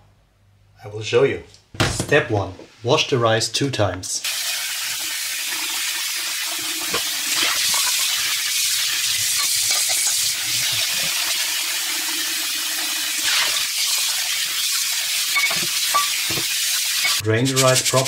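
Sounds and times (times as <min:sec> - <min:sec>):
tap water running into a metal sink: 0:04.2 - 0:17.2.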